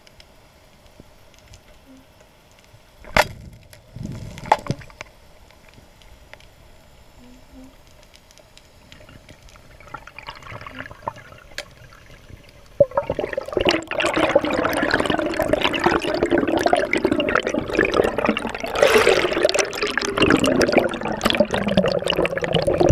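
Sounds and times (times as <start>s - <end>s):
faint underwater ambience: 0.0s - 22.9s
sharp clicks underwater: 7.8s - 22.9s
churning bubbling water: 9.0s - 22.9s.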